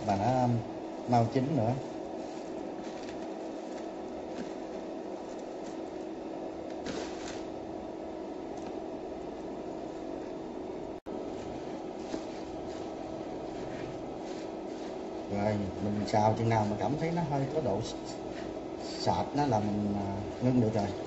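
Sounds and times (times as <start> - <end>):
cooktop fan humming: 0.0 - 21.0.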